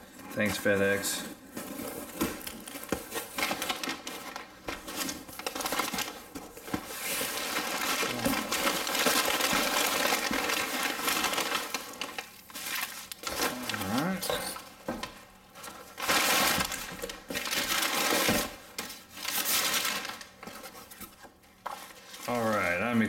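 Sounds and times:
packing paper crinkling: 0.0s - 23.0s.

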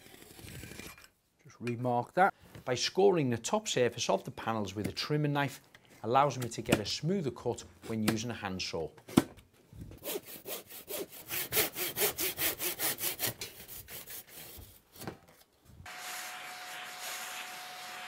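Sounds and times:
handsaw sawing wood: 10.0s - 14.6s.

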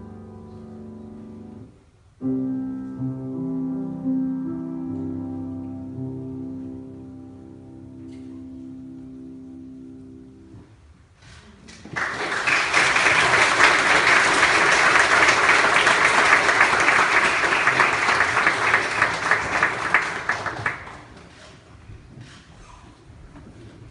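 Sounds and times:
held music chord: 0.0s - 10.8s
congregation applauding: 11.9s - 21.4s.

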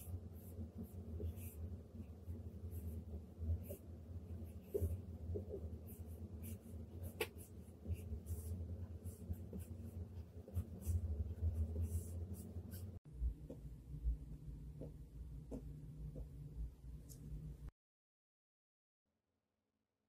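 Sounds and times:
stylus scratching and tapping screen: 0.0s - 13.7s
low steady hum: 0.0s - 17.7s.

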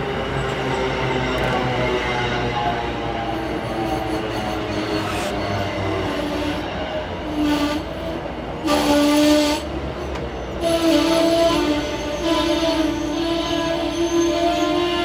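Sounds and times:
train rumbling: 0.0s - 15.0s
train horn blasts: 7.2s - 9.7s, 10.6s - 15.0s.

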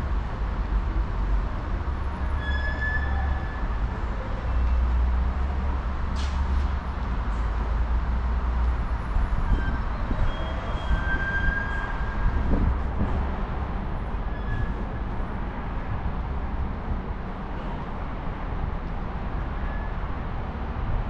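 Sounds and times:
train rumbling: 0.0s - 18.4s
faint high wheel squeals: 2.0s - 4.9s, 9.3s - 12.2s, 14.3s - 14.9s, 19.6s - 20.0s.

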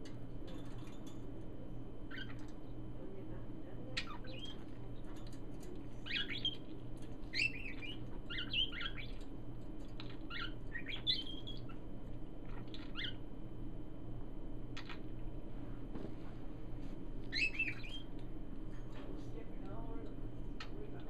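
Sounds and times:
parakeets chirping and chattering: 2.0s - 2.8s, 3.9s - 13.3s, 14.8s - 15.1s, 17.2s - 18.2s.

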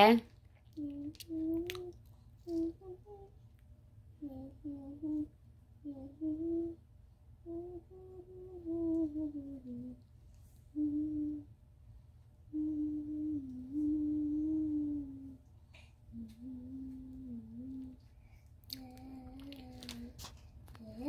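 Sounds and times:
girl humming: 0.8s - 3.4s, 4.2s - 6.8s, 7.4s - 10.0s, 10.7s - 11.6s, 12.5s - 15.5s, 16.1s - 18.1s, 18.7s - 20.2s, 20.8s - 21.0s.

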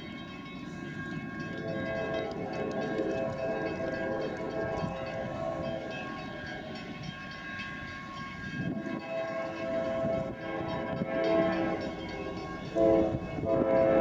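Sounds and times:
train low rumble: 0.0s - 14.0s
locomotive air horn blasts: 9.0s - 14.0s.

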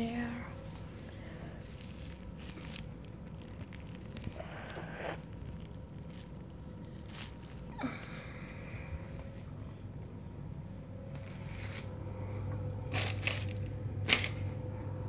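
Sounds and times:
plastic film crinkling: 0.8s - 7.8s.

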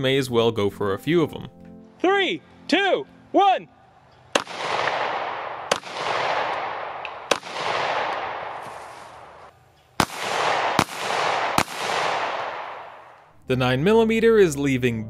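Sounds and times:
handgun shots with rolling echo: 4.2s - 13.3s.

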